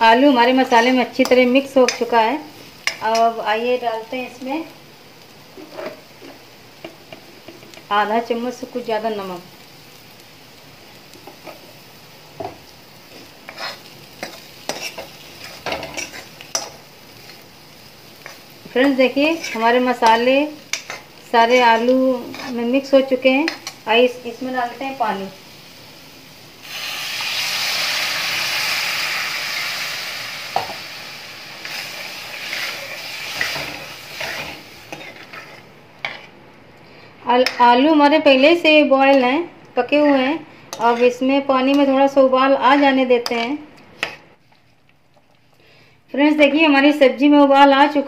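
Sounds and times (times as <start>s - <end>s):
faint sizzle from pan: 0.0s - 48.0s
spoon scraping metal pan: 13.5s - 16.8s, 19.2s - 22.7s, 31.6s - 36.4s, 40.7s - 41.9s
steel ladle scraping metal pan: 31.6s - 36.3s.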